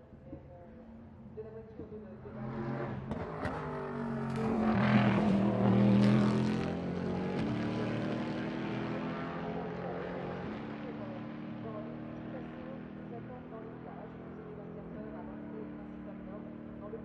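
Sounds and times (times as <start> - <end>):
race car engine passing: 2.2 - 14.7.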